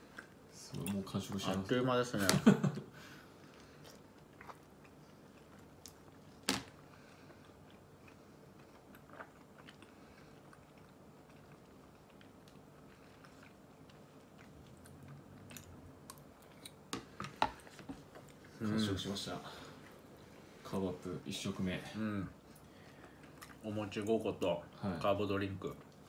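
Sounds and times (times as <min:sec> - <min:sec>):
person chewing: 0:03.4 - 0:18.6, 0:22.4 - 0:24.0.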